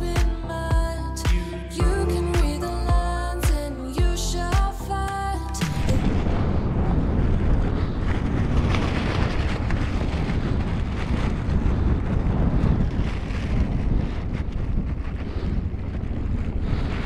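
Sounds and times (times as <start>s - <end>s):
wind blowing on microphone: 5.6s - 17.0s.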